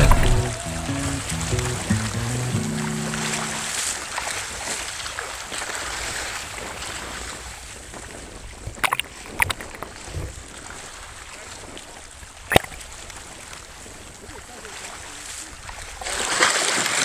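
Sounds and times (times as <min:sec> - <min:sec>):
sharp clicks: 0:12.5 - 0:12.8.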